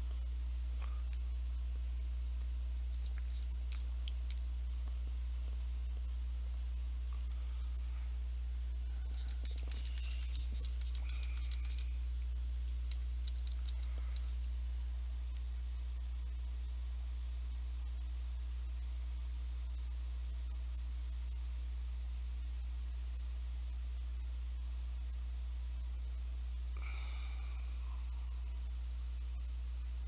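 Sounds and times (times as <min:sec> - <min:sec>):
low electrical hum: 0:00.0 - 0:30.0
stylus scratching on tablet: 0:00.9 - 0:12.0.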